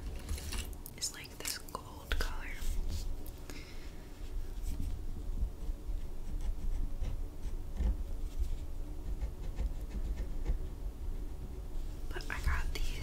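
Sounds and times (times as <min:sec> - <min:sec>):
pen scratching on paper: 0:06.2 - 0:08.0, 0:09.0 - 0:10.6.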